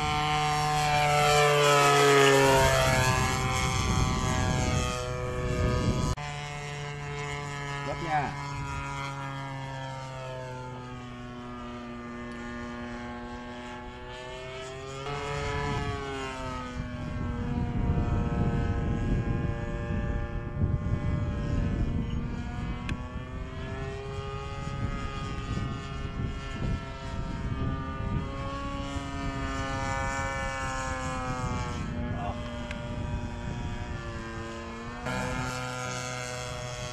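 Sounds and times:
model airplane propeller droning: 0.0 - 36.9
gusty low rumble: 2.4 - 6.6, 15.1 - 36.9.

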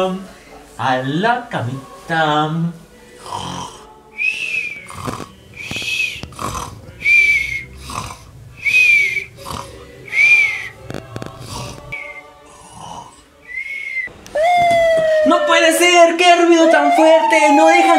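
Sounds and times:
cartoon snoring with whistle: 3.2 - 14.1.

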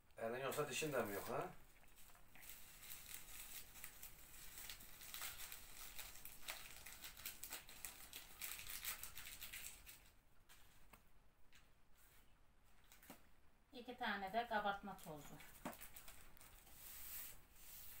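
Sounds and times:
paper sachets crinkling and tearing: 0.4 - 10.2, 15.0 - 17.4.

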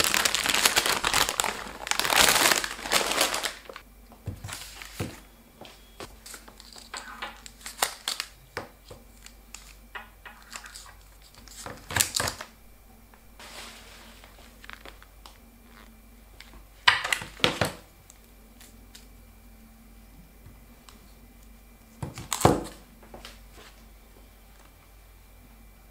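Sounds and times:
plastic packaging crinkling: 0.0 - 5.3, 6.0 - 12.6, 13.4 - 15.4.

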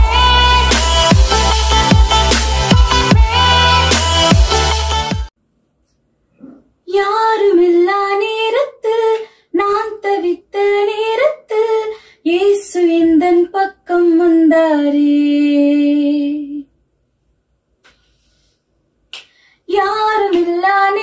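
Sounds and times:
girl singing unaccompanied: 6.9 - 16.7, 19.7 - 21.0.

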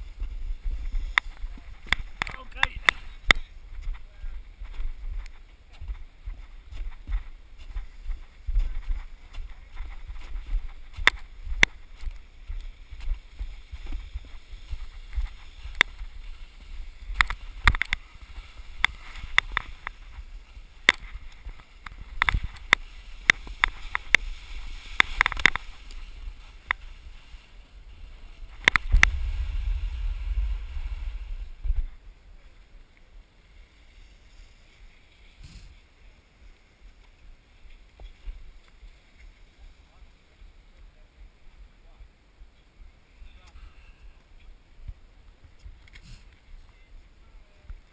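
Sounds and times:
snowboard knocks and clacks: 0.0 - 27.2
wind rumbling on microphone: 0.0 - 47.9
snowboard scraping over snow: 6.1 - 32.1, 33.5 - 36.1.

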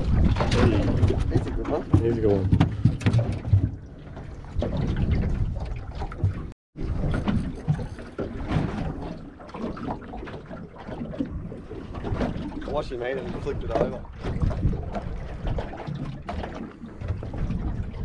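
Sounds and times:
water lapping against boat hull: 0.0 - 18.0
hull knocks: 0.2 - 5.4.

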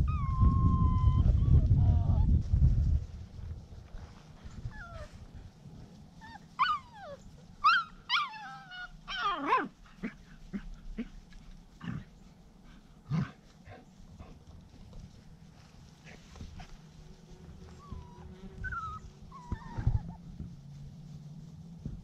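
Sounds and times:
puppies yelping and whining: 0.0 - 2.3, 4.7 - 5.2, 6.2 - 9.8, 17.6 - 20.3.

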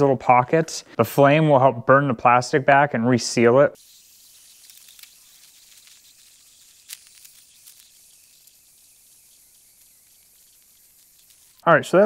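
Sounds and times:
gas torch flame hissing: 3.8 - 12.0.

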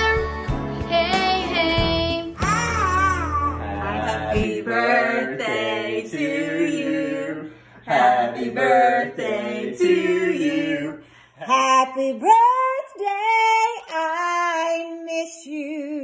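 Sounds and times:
adults singing unaccompanied: 3.7 - 12.2.

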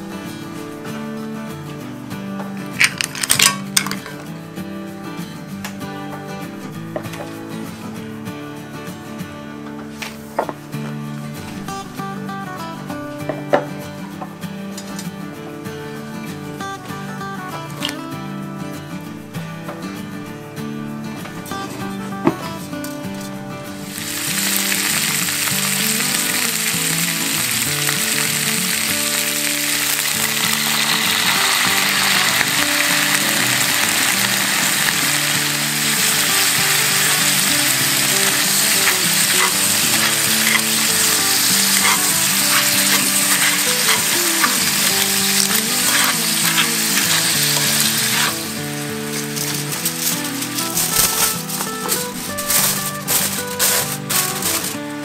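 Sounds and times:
food sizzling in hot oil: 23.8 - 54.7
stirring clicks: 23.8 - 54.7.

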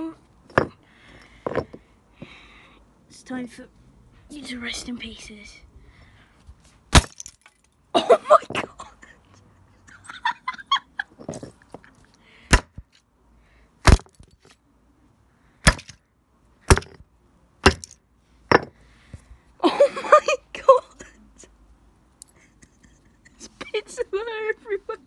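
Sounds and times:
concrete block smashing toy: 6.9 - 7.8, 12.5 - 13.0, 13.8 - 14.6, 15.6 - 16.0, 16.6 - 18.8.

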